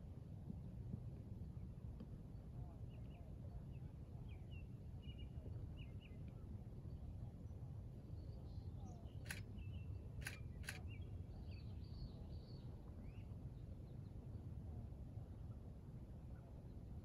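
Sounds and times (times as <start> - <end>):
faint bird chirps: 8.2 - 13.4
sharp clicks: 10.2 - 10.8.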